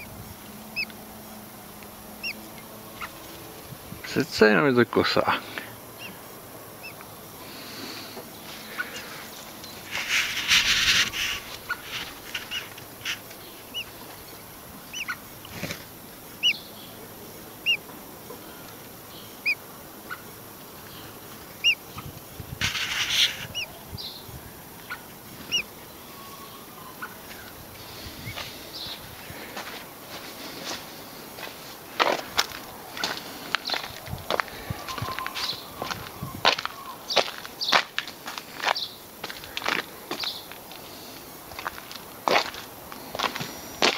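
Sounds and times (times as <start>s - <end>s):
blackbird chip calls: 0.7s - 1.0s, 2.2s - 3.4s, 4.0s - 15.7s, 16.3s - 29.4s, 32.9s - 37.9s
rustling: 7.5s - 16.0s, 22.2s - 23.6s.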